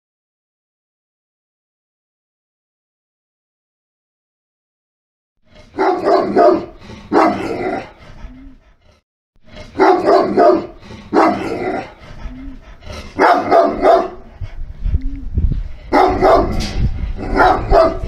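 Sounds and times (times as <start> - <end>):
dog barking: 5.6 - 8.0, 9.6 - 12.0, 12.9 - 14.3, 15.9 - 18.0.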